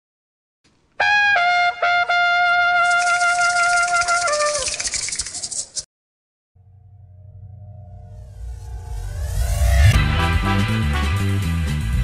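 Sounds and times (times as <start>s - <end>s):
brass jingle melody: 1.0s - 4.8s, 10.0s - 11.9s.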